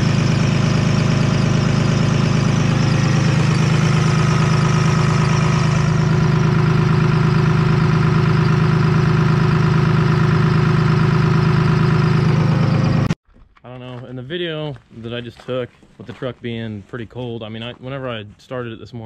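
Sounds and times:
diesel engine idling: 0.0 - 13.2.

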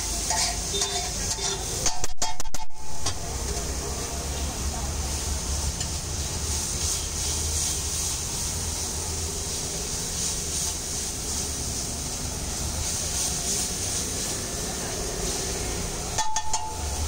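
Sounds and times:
eggs sizzling on griddle: 0.0 - 17.0
metal masher scraping: 0.2 - 3.9
steady low rumble: 2.0 - 6.4.

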